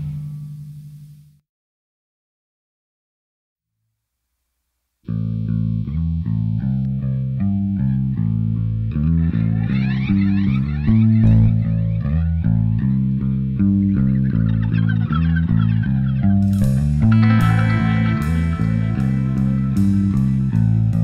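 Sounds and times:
electric bass guitar riff: 0.0 - 1.4, 5.0 - 21.0
electric guitar: 5.1 - 21.0.

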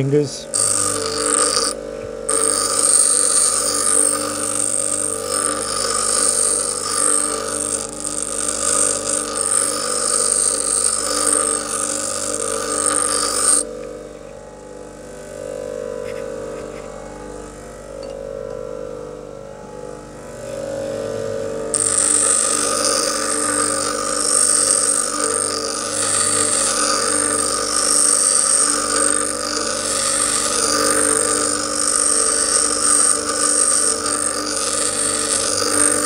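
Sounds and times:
bench grinder motor running: 0.0 - 36.0
steel file grinding on wheel: 0.4 - 13.8, 21.7 - 36.0.

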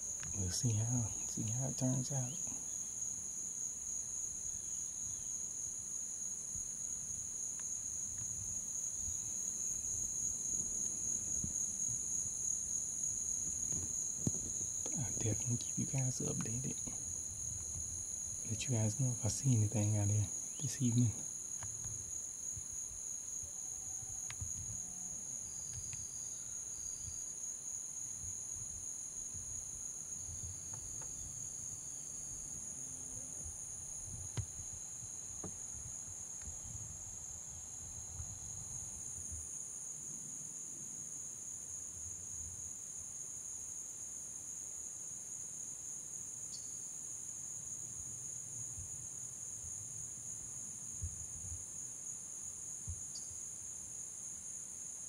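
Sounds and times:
insects singing: 0.0 - 32.8.

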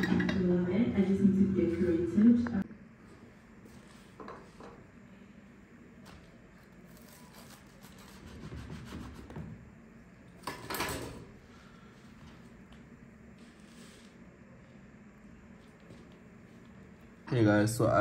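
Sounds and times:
food being handled and scraped: 6.6 - 9.2.

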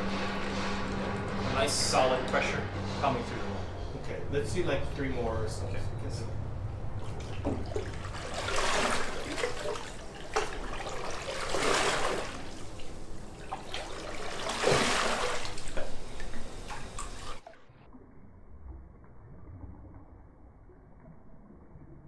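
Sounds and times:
water sloshing: 0.0 - 21.9
faint dull water wash: 0.0 - 22.0
paddle strokes splashing: 6.9 - 17.6.

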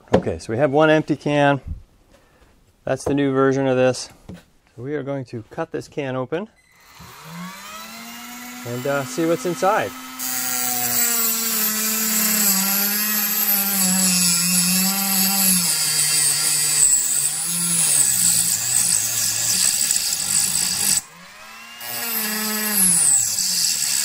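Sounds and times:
rotary tool grinding on metal can: 6.6 - 24.0.

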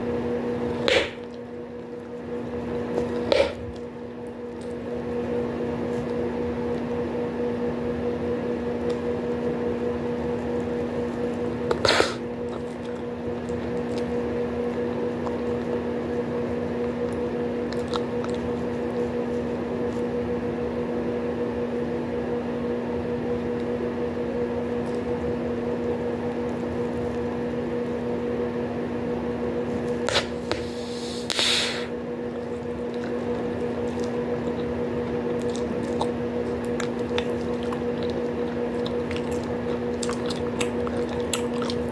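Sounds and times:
bubblegum being chewed: 10.4 - 20.1, 32.3 - 41.9
gum bubbles popping: 32.8 - 41.9.

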